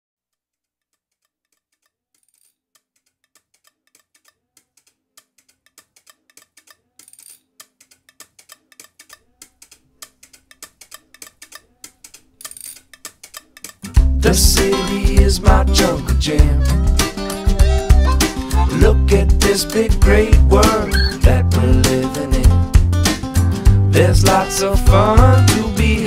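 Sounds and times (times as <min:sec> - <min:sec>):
clicking percussion rhythm: 0:02.8 - 0:26.0
bass line: 0:14.0 - 0:26.0.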